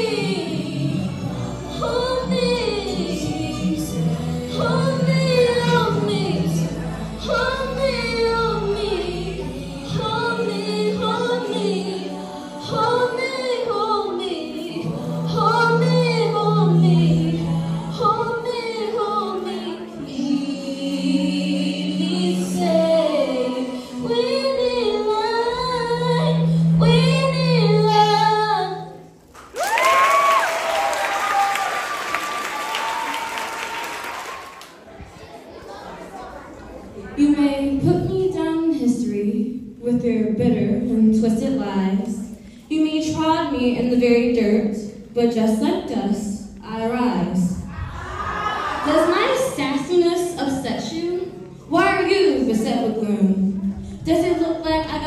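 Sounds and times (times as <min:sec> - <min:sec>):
choir singing a cappella: 0:00.0 - 0:28.8
applause: 0:29.4 - 0:34.8.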